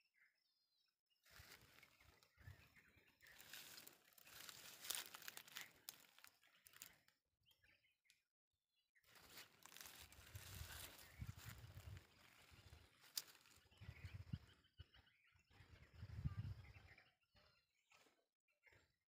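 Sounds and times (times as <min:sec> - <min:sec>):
footsteps on dry leaves and grass: 0:01.2 - 0:02.6, 0:03.2 - 0:06.9, 0:09.1 - 0:13.7.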